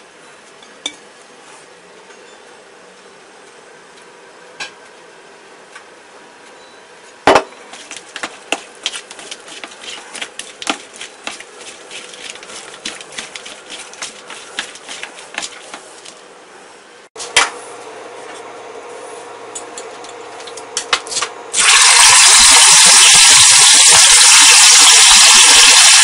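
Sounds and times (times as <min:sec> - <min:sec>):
meat slapping against metal bowl: 0:07.8 - 0:16.2.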